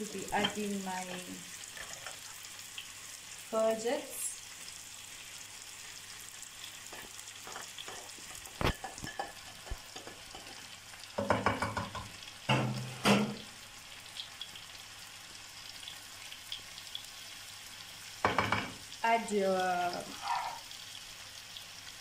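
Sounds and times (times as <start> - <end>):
chicken sizzling in a frying pan: 0.0 - 22.0
spatula scraping a pan: 1.6 - 2.4, 6.8 - 10.6, 20.0 - 20.7.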